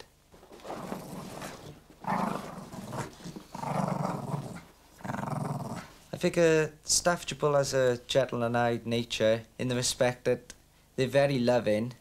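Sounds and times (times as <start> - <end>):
dog growling: 0.7 - 6.0.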